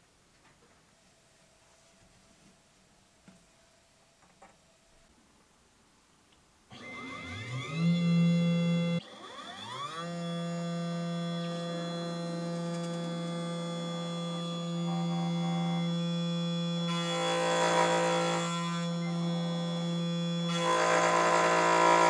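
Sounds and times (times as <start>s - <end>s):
mill spindle whine: 6.7s - 22.0s.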